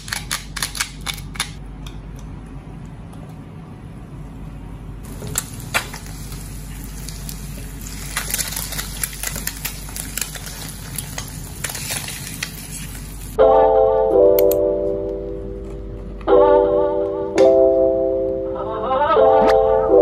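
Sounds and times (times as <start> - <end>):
egg sizzling in hot oil: 5.1 - 13.4
piano music: 13.4 - 20.0.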